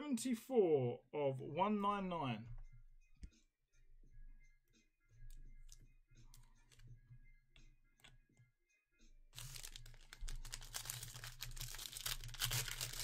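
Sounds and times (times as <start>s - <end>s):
foil wrapper crinkling and tearing: 9.4s - 13.0s.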